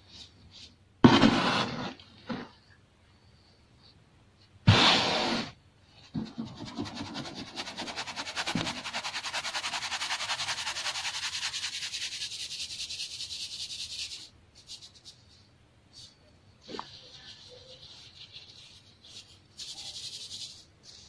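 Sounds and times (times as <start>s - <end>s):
loud rubbing noise: 4.7s - 12.8s.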